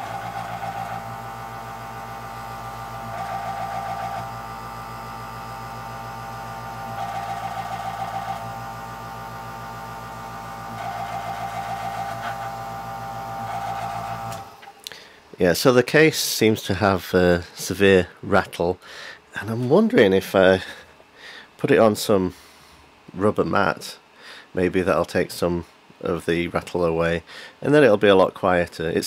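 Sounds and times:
compressor humming: 0.0s - 15.4s.

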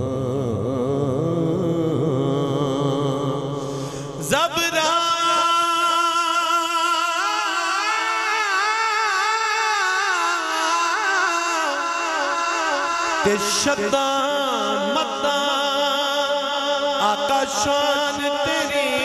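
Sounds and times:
man singing long held note: 0.0s - 19.0s.

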